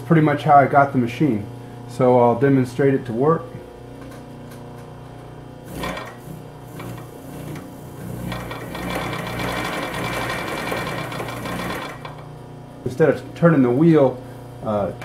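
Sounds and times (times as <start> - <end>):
steady hum: 0.0 - 15.0
sewing machine sewing denim: 5.7 - 6.2, 6.8 - 12.2.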